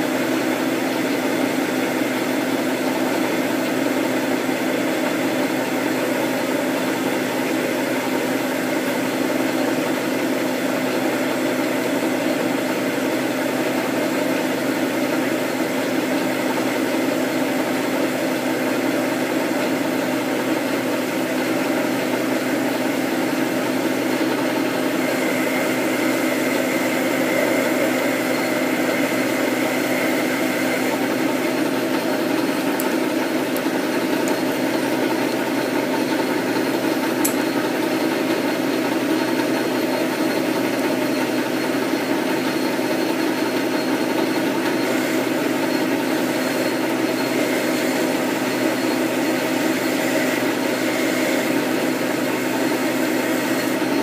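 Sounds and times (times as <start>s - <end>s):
lathe motor humming: 0.0s - 54.0s.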